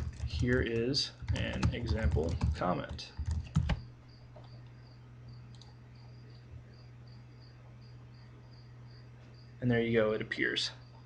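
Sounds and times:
steady low hum: 0.0 - 11.0
sharp clicks: 5.5 - 5.8.

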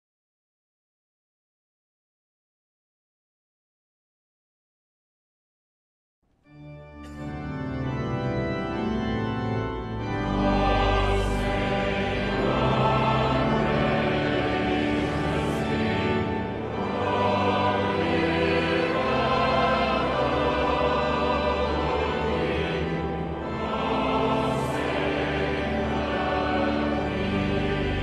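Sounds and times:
organ chords: 6.4 - 28.0
choir singing: 9.8 - 28.0.

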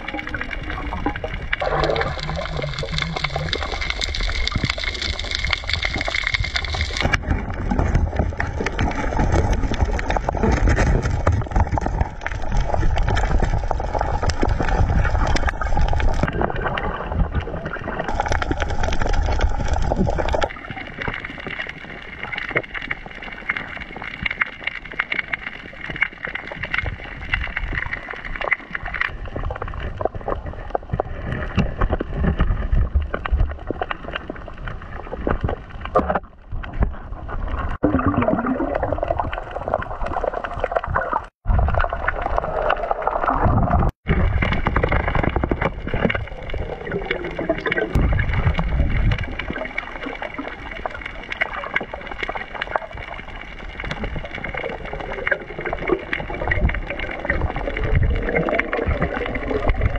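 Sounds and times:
bubbly sweeps: 0.0 - 21.4, 36.9 - 59.9
underwater water rushing: 0.0 - 59.9.

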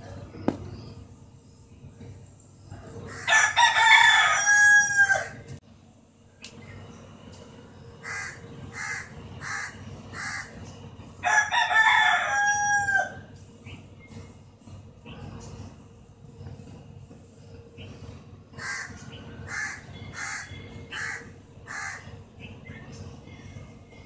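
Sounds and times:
rooster crowing: 3.1 - 5.5, 11.2 - 13.3.

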